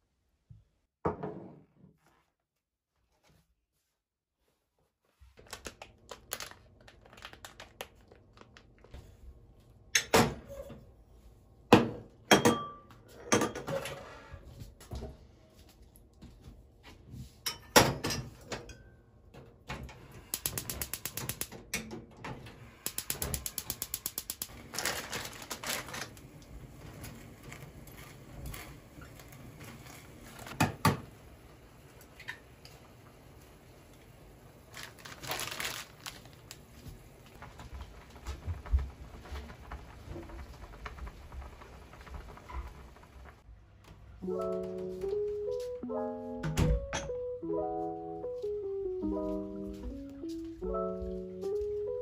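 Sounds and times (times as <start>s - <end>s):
rapid even clicking: 22.9s - 24.5s.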